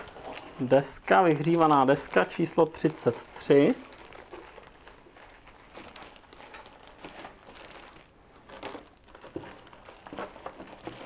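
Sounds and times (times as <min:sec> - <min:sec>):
plastic bags rustling and crinkling: 0:00.0 - 0:11.0.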